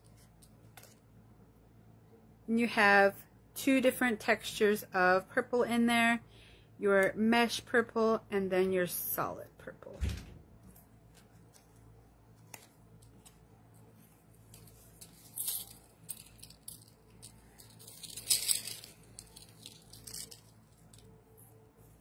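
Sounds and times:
jewelry rustling and clicking: 0.0 - 1.1, 10.6 - 22.0.

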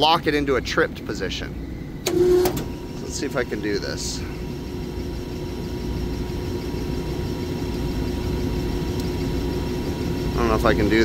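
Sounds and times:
exhaust fan running: 0.0 - 11.0.

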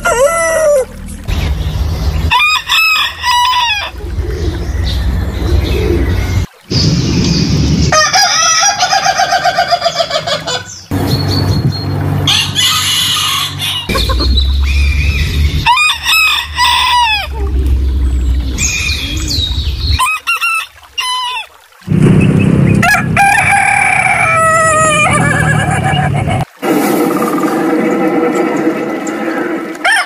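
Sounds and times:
roosters crowing: 2.3 - 4.0, 7.9 - 10.6, 12.2 - 14.0, 14.6 - 17.4, 22.7 - 26.0.

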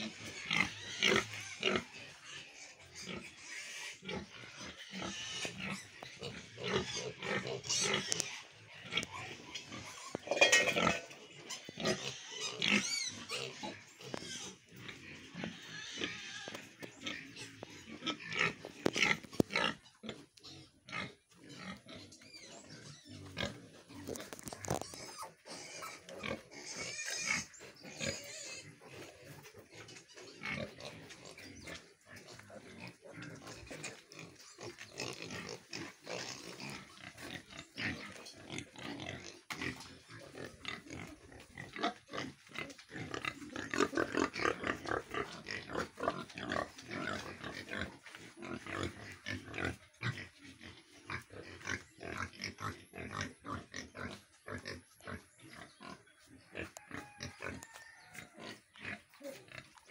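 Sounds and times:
pigs grunting and squealing: 0.0 - 59.9.

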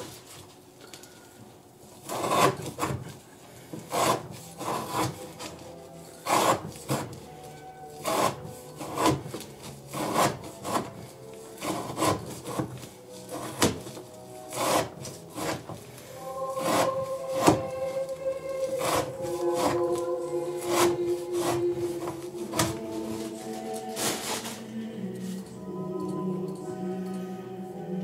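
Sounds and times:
knife slicing through rope: 16.3 - 24.6.

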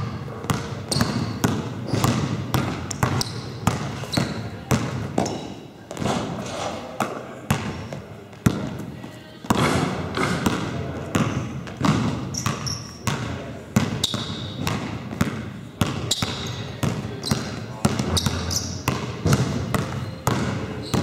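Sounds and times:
basketball bouncing on wooden floor: 0.0 - 6.4, 7.5 - 8.7, 9.4 - 21.0
trainers squeaking on floor: 0.8 - 2.1, 3.1 - 4.6, 12.3 - 13.0, 16.0 - 18.9, 19.8 - 21.0.

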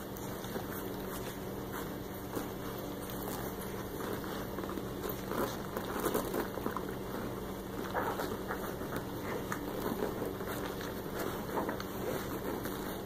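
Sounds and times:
puppies suckling wet smacking: 0.0 - 13.0
steady low hum: 0.0 - 13.0.

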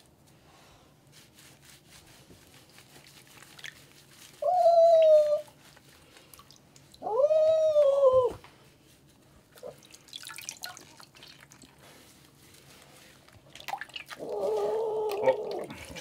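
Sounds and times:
water dripping and trickling: 5.8 - 7.0, 9.6 - 11.9, 13.3 - 16.0.

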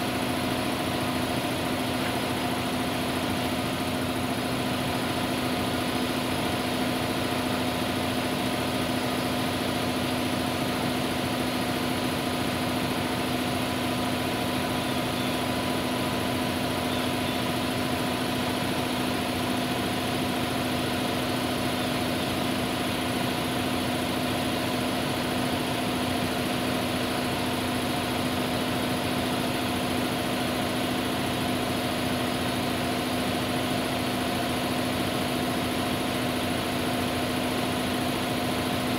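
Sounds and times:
steady machine hum: 0.0 - 38.9.

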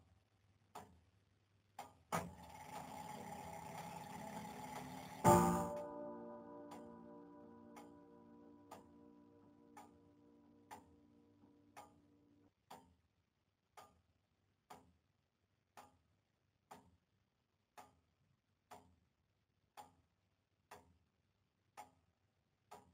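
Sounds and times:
faint slow ticking: 1.8 - 12.1
held musical chord: 5.2 - 10.7.

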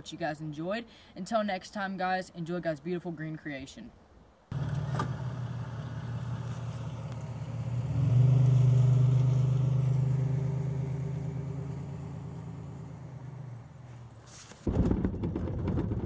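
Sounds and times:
truck engine pulling away: 4.5 - 14.3.

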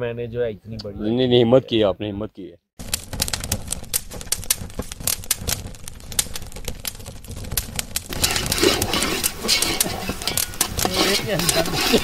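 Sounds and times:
simmering pot hiss: 2.8 - 12.0
wood fire crackling and popping: 2.8 - 12.0
ladle scraping a pot: 8.1 - 12.0.

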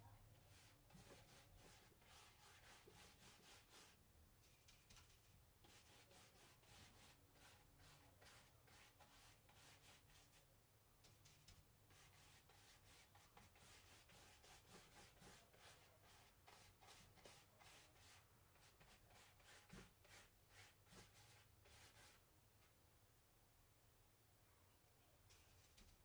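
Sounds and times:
brush scrubbing fabric: 0.5 - 10.4, 11.9 - 22.2.

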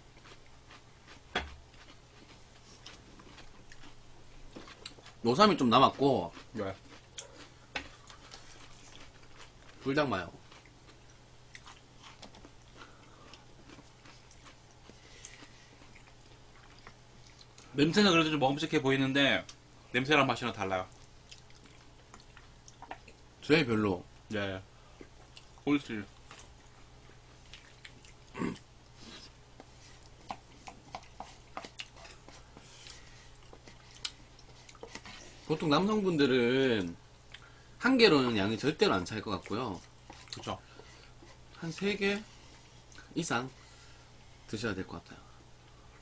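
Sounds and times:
steady low hum: 0.0 - 46.0
chewing: 0.1 - 5.2, 6.2 - 17.8, 20.8 - 23.3, 25.0 - 36.0, 39.4 - 41.8.

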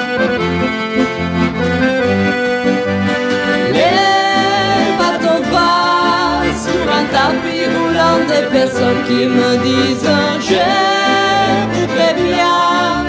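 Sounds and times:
accordion folk tune: 0.0 - 13.0
acoustic guitar: 0.0 - 13.0
bass beat: 0.2 - 10.8
person singing: 3.6 - 13.0.

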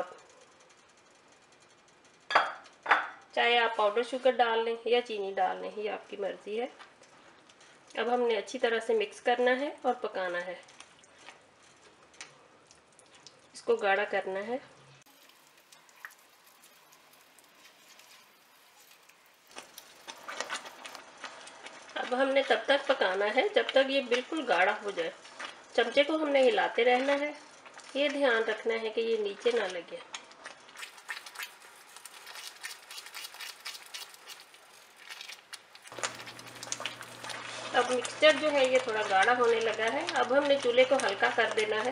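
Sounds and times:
spatula scraping pan: 30.8 - 41.8.

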